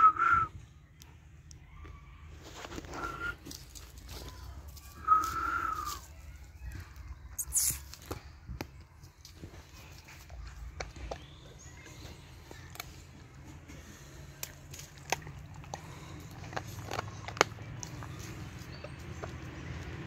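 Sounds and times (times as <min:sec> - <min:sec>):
dog chewing and crunching food: 0:09.1 - 0:20.0.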